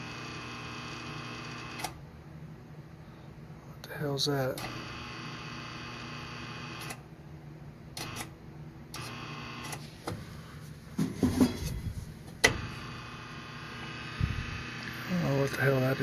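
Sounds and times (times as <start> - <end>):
relay electrical buzz: 0.0 - 2.0, 4.1 - 7.1, 7.9 - 10.5, 12.0 - 16.0.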